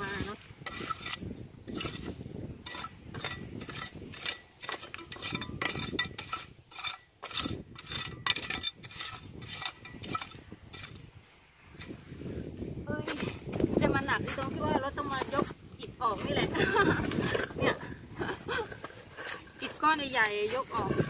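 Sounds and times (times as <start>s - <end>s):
metal rake scraping stones: 0.0s - 12.4s, 16.4s - 17.8s, 18.6s - 21.0s.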